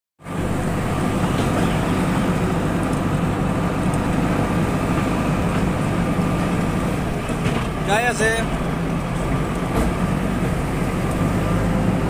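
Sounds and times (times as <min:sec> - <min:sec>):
diesel engine running: 0:00.2 - 0:12.0.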